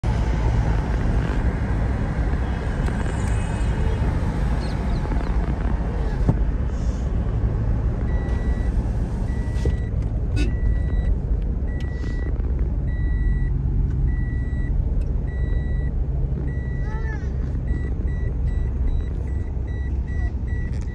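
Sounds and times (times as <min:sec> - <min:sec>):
car cabin road rumble: 0:00.0 - 0:20.9
electronic beeps: 0:08.1 - 0:08.7, 0:15.3 - 0:16.9.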